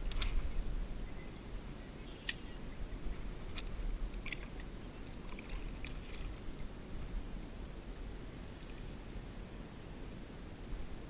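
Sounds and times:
low steady rumble: 0.0 - 11.0
small sharp ticks: 2.2 - 2.5
water splashing and dripping: 3.6 - 6.6.

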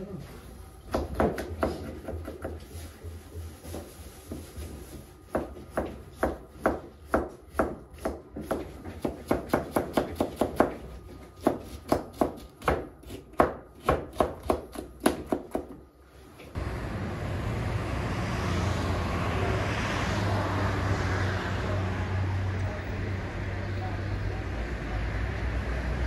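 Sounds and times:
knife chopping on cutting board: 0.9 - 2.6, 5.3 - 10.8, 11.4 - 15.8.

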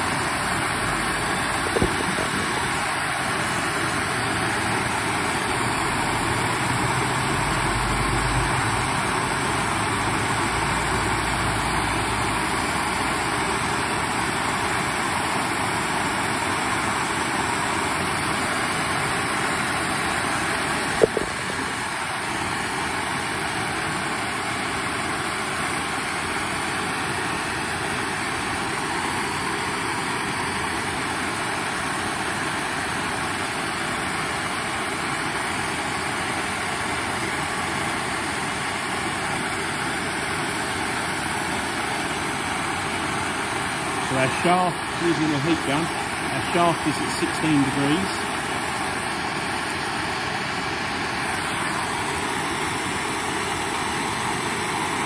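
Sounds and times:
gas torch hissing: 0.0 - 23.6, 38.2 - 55.0.

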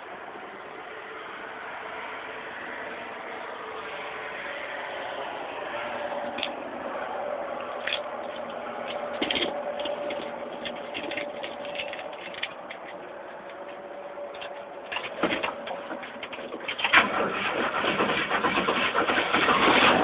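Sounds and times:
engine idling heard from cab: 2.8 - 20.0.

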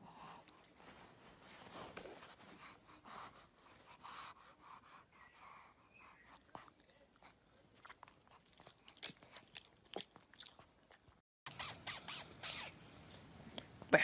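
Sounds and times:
rustling: 0.6 - 2.7
dog chewing: 6.4 - 11.2.

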